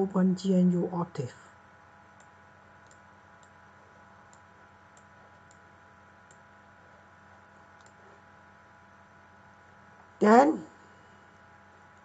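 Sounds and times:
low room hum: 0:00.0 - 0:12.0
computer mouse clicks: 0:02.1 - 0:03.6, 0:04.2 - 0:06.5, 0:07.8 - 0:08.1.

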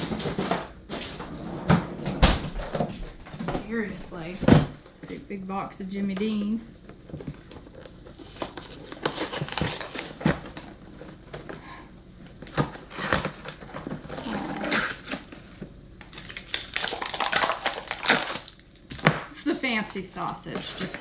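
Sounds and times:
cardboard and plastic tearing: 0:07.1 - 0:11.5, 0:12.4 - 0:19.2.

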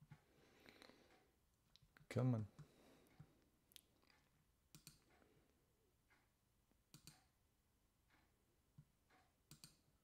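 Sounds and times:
faint clicks: 0:09.1 - 0:09.8.

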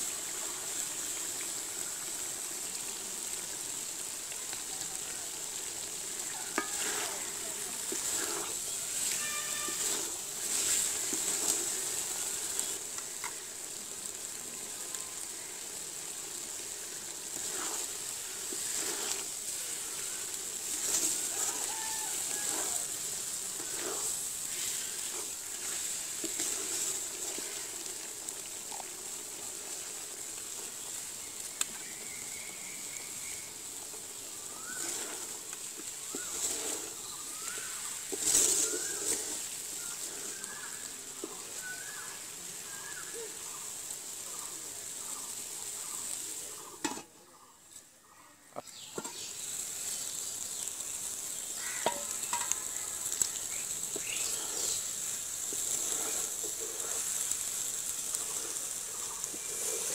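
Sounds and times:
frying hiss: 0:00.0 - 0:59.9
birds chirping: 0:00.4 - 0:29.5, 0:30.2 - 0:59.9
spatula scraping pot: 0:06.4 - 0:11.9, 0:17.3 - 0:27.5, 0:34.7 - 0:35.4.

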